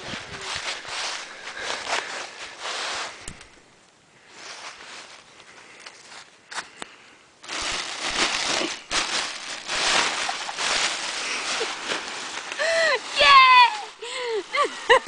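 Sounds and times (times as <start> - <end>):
plastic bag crinkling: 7.4 - 13.5.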